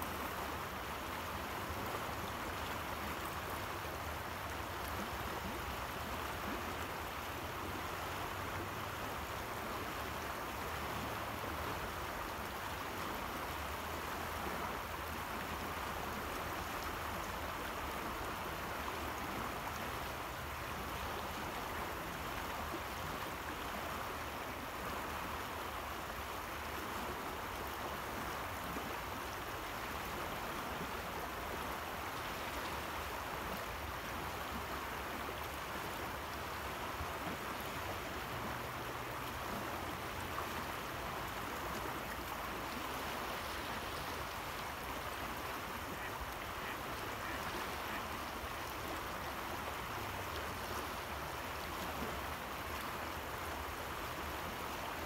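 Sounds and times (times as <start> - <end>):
fast river water rushing: 0.0 - 55.0.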